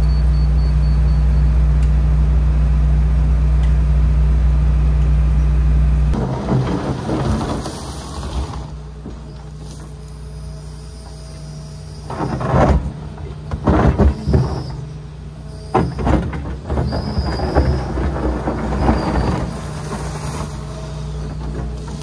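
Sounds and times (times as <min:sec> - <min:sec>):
excavator diesel engine running: 0:00.0 - 0:22.0
bucket scraping gravelly soil: 0:06.2 - 0:11.0, 0:16.3 - 0:22.0.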